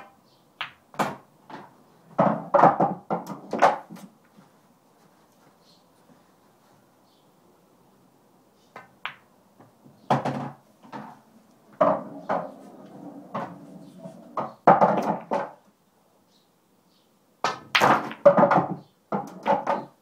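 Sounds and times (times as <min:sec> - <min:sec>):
pool balls knocking: 0:00.0 - 0:04.1, 0:10.1 - 0:15.6, 0:17.5 - 0:20.0
pool cue hitting ball: 0:11.7 - 0:15.6.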